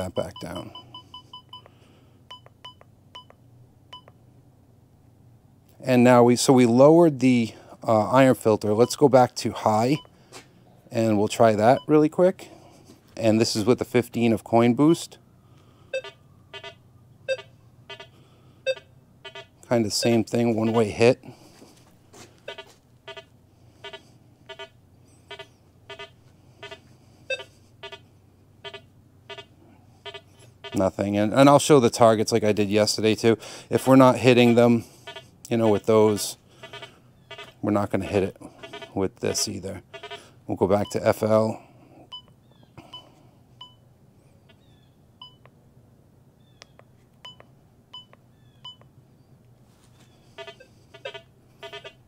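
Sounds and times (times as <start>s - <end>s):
metal detector beeping: 0.0s - 1.7s, 2.3s - 4.1s, 8.8s - 9.1s, 9.9s - 10.1s, 11.7s - 12.0s, 15.9s - 21.0s, 22.5s - 28.0s, 28.6s - 30.9s, 33.8s - 41.2s, 45.2s - 45.5s, 47.2s - 48.9s, 50.4s - 52.0s.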